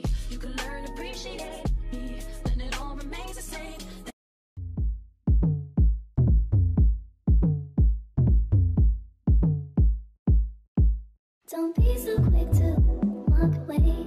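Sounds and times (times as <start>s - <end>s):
electronic bass drum beat: 1.6s - 3.2s, 4.6s - 11.1s, 11.8s - 14.0s.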